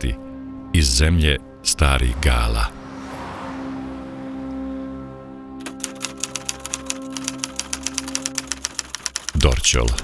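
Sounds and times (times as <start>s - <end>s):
background music of held tones: 5.1s - 10.0s
typewriter key clacks: 5.6s - 10.0s.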